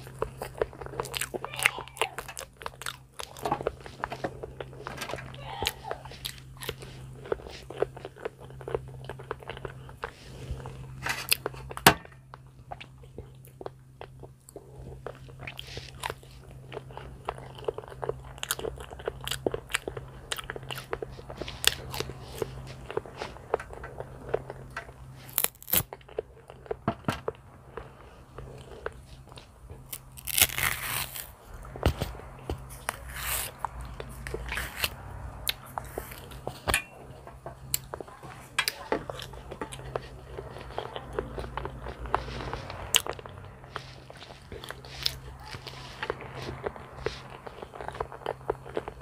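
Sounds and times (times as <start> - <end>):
chewing with mouth clicks: 0.0 - 49.0
banana peel tearing: 25.3 - 25.9, 29.9 - 32.2.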